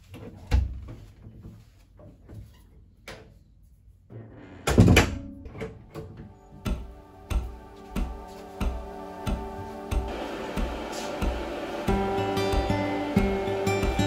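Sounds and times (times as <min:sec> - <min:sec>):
soft music: 0:05.4 - 0:14.0.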